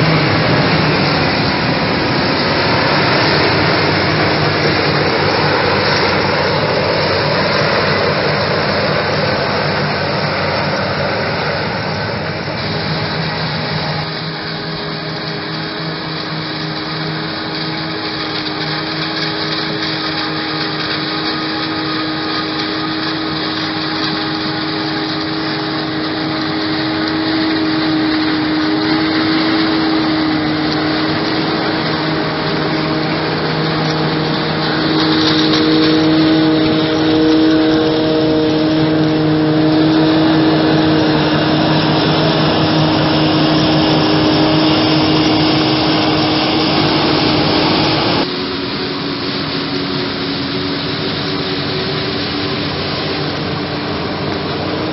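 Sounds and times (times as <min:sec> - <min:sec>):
harvester and tractor droning: 0:00.0 - 0:54.9.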